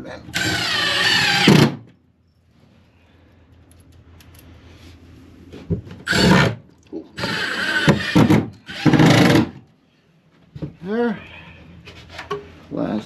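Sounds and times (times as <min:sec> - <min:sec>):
power drill driving screws: 0:00.3 - 0:01.8, 0:06.1 - 0:06.6, 0:07.2 - 0:09.6
faint scraping and handling: 0:02.3 - 0:06.0, 0:11.2 - 0:12.8.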